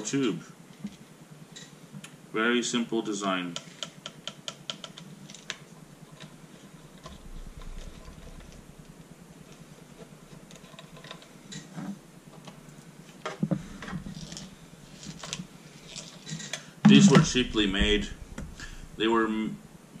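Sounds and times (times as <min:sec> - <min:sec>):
knocks: 0:16.9 - 0:19.0.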